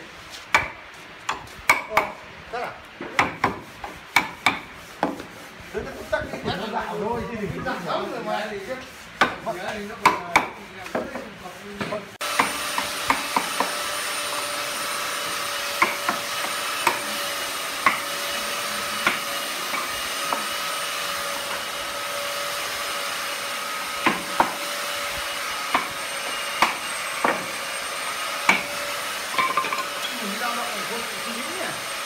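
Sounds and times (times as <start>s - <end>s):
hammer tapping on wood: 3.0s - 3.6s, 9.2s - 13.7s.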